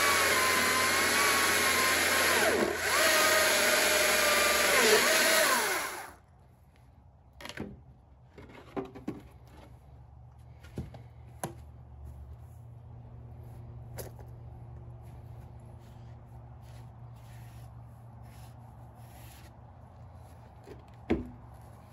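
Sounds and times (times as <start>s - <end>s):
electric chainsaw cutting log: 0.0s - 6.2s.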